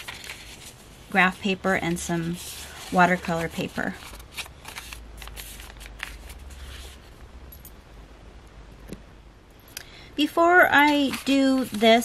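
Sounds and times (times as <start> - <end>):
paper rustling: 0.0 - 7.1, 10.8 - 12.0.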